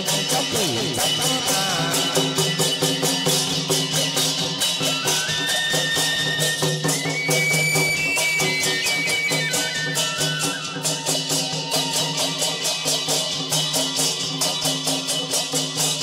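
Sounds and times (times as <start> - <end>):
high held notes: 0.0 - 5.4
quick percussion beat: 0.0 - 16.0.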